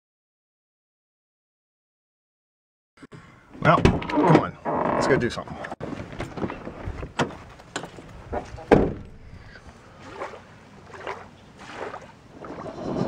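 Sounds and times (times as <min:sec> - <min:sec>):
loud thump: 0:08.7 - 0:09.1.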